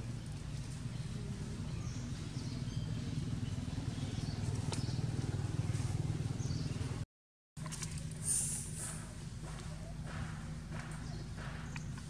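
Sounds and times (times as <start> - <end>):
low engine drone: 7.6 - 12.0.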